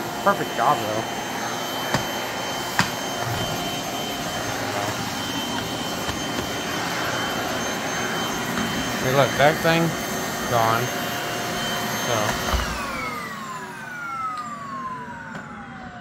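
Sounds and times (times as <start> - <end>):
vacuum cleaner running: 0.0 - 16.0.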